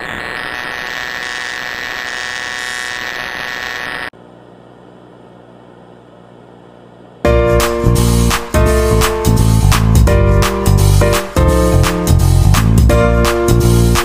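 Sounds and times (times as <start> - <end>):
loud music: 7.3 - 14.0.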